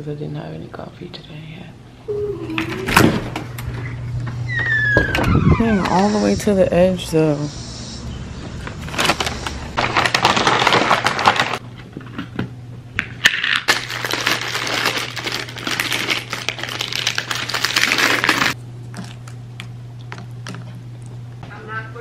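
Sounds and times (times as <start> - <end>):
paper bag rustling: 8.6 - 11.6, 13.6 - 18.6
plastic wrapper crinkling: 8.7 - 11.6, 13.4 - 19.4.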